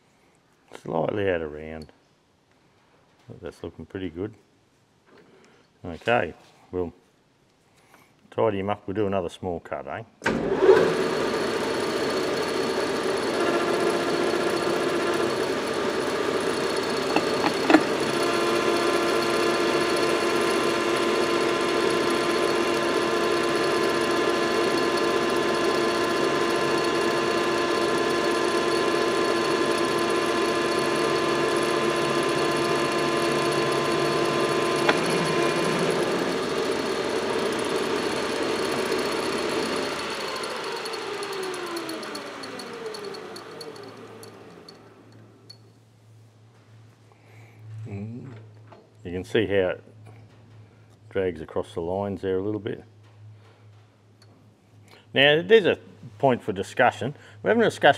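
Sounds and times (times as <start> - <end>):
metal lathe whining: 10.3 - 45.6.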